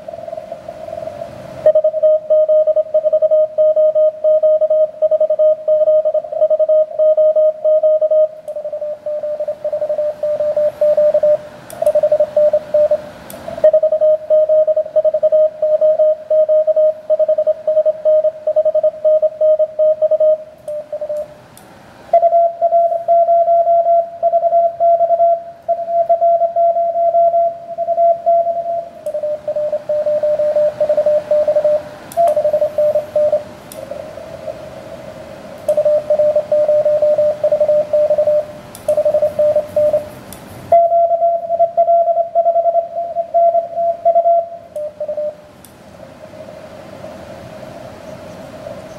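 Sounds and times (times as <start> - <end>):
radio band hiss: 0.0 - 1.6, 28.6 - 40.8
morse code keyed tone: 1.6 - 21.3, 22.1 - 33.5, 35.7 - 45.4.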